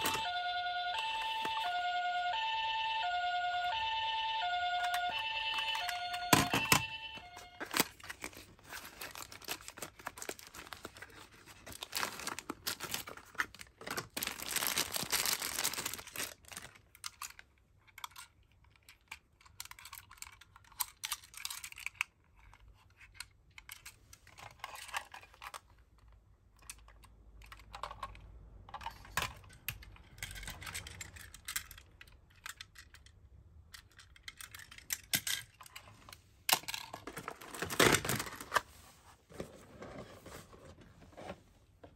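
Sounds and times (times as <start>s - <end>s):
cardboard box rustling: 7.6s - 15.9s, 37.5s - 41.5s
toy car clicks and taps: 17.0s - 23.9s, 26.6s - 35.8s.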